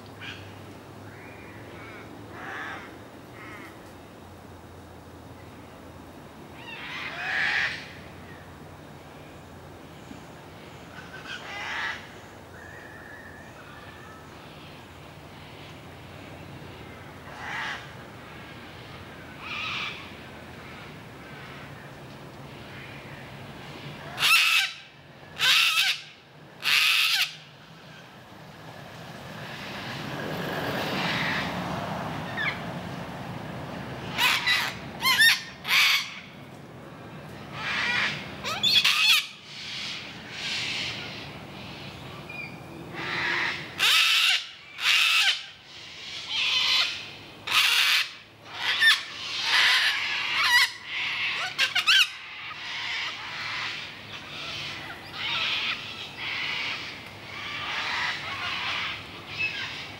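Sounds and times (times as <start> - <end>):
cockatoos screeching: 34.1 - 36.3, 37.6 - 41.9, 43.0 - 59.9.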